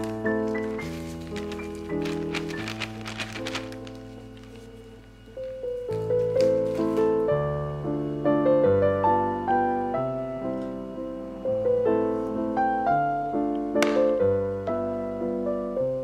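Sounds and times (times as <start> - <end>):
gentle piano melody: 0.0 - 16.0.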